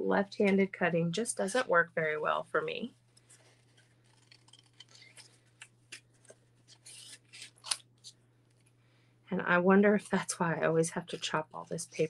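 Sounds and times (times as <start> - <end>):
scissors snipping cardstock: 4.1 - 7.8.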